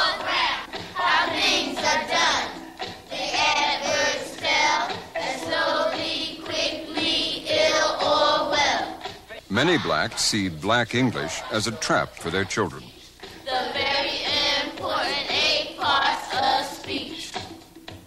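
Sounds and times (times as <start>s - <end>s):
children chanting a rap: 0.0s - 17.5s.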